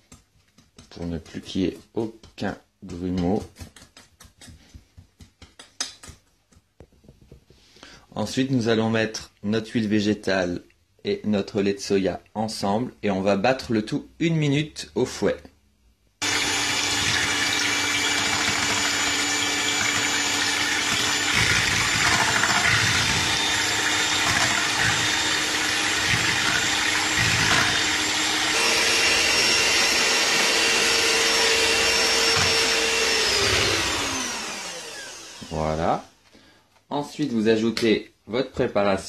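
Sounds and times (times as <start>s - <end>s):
electric hand mixer running: 16.2s - 35.8s.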